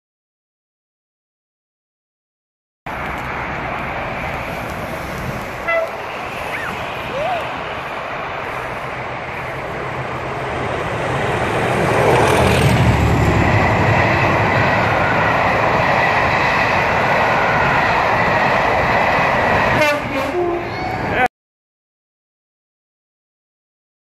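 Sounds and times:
coaches rolling past: 0:02.9 - 0:21.3
diesel locomotive engine: 0:02.9 - 0:21.3.

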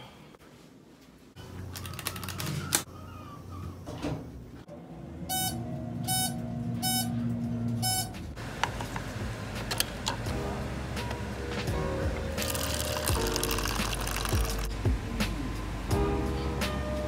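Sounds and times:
elevator humming: 0:04.6 - 0:17.0
elevator signal beeps: 0:05.3 - 0:07.2, 0:07.8 - 0:08.2.

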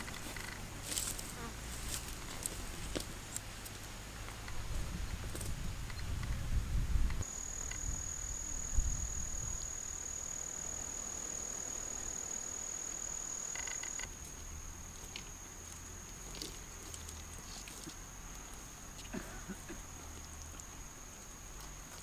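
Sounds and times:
insect trilling: 0:07.2 - 0:16.4.

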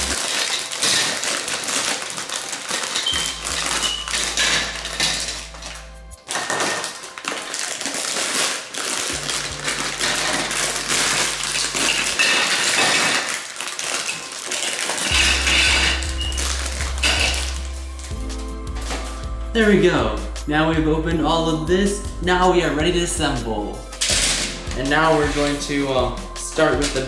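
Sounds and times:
plastic track pieces clattering: 0:00.0 - 0:17.6.

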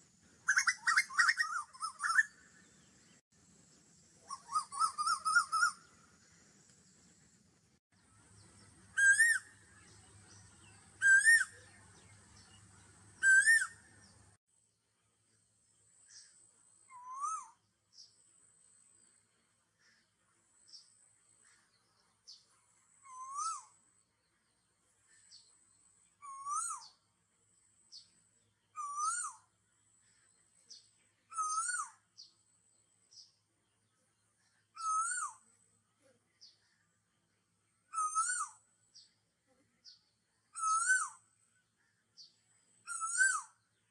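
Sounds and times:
whistled call: 0:00.5 - 0:02.4, 0:04.2 - 0:05.9, 0:08.9 - 0:09.6, 0:11.0 - 0:11.7, 0:13.2 - 0:13.9, 0:16.9 - 0:17.6, 0:23.0 - 0:23.8, 0:26.2 - 0:27.0, 0:28.8 - 0:29.5, 0:31.3 - 0:32.0, 0:34.8 - 0:35.4, 0:37.9 - 0:38.7, 0:40.5 - 0:41.2, 0:42.9 - 0:43.6.

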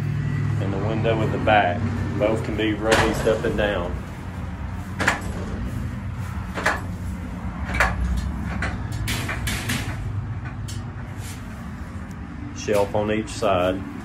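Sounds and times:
steady low rumble: 0:00.0 - 0:14.0
sharp knocks and clicks: 0:02.9 - 0:03.4, 0:05.0 - 0:05.6, 0:06.5 - 0:06.9, 0:07.6 - 0:10.9.

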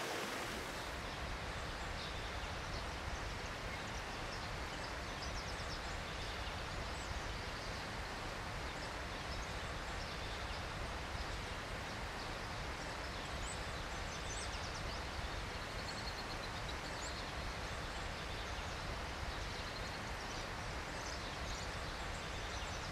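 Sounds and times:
steady hiss: 0:00.0 - 0:01.3.

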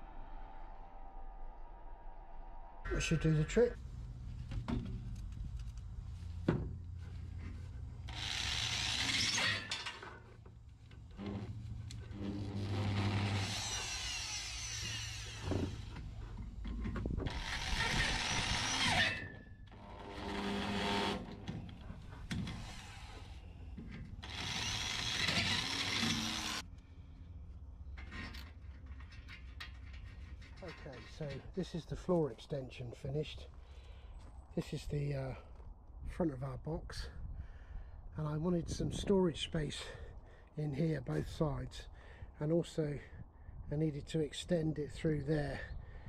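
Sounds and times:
electric drill boring: 0:08.0 - 0:10.0, 0:11.1 - 0:16.0, 0:17.3 - 0:21.6, 0:24.2 - 0:26.6.

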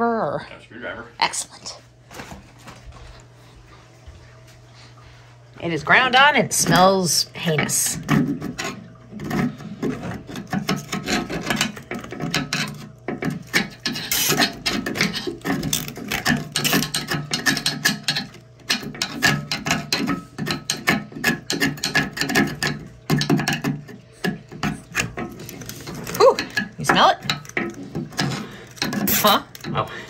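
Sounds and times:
screwdriver scraping metal drain: 0:06.6 - 0:29.8.

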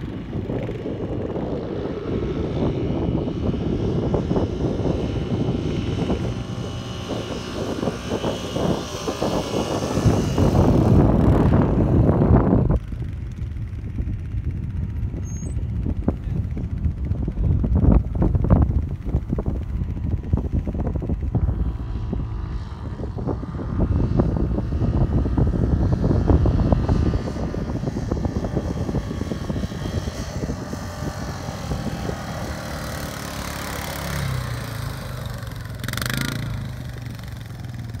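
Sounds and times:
quad bike engine running: 0:00.0 - 0:38.0
wind rumble on microphone: 0:00.0 - 0:38.0.

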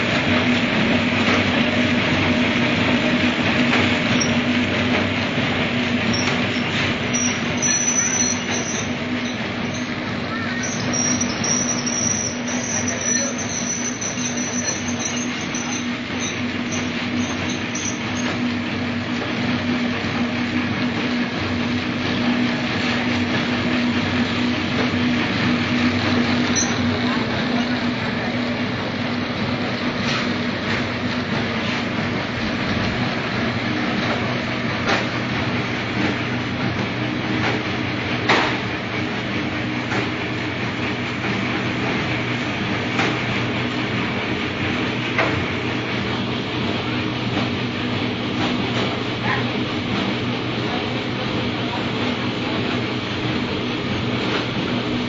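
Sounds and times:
packaging machine running: 0:00.0 - 0:55.0
sharp machine clack: 0:06.0 - 0:18.5.

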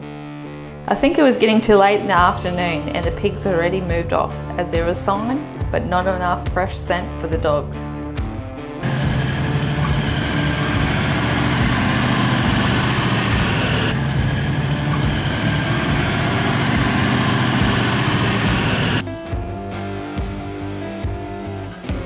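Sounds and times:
music: 0:00.0 - 0:22.0
vehicle engine running: 0:08.8 - 0:19.0.

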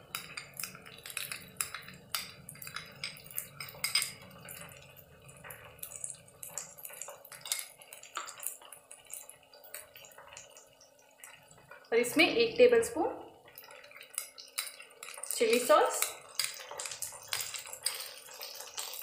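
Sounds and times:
spoon clinking against glass bowl: 0:00.1 - 0:04.8.

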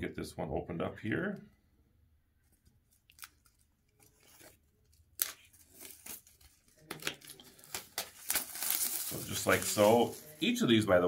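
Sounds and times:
wrapping being torn: 0:02.6 - 0:10.6.

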